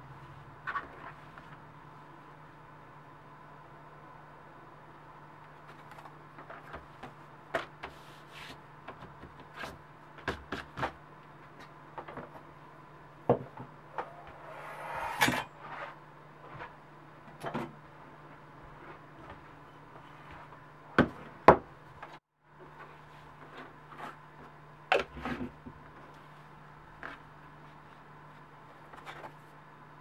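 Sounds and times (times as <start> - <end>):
steady low hum: 12.5 - 18.6.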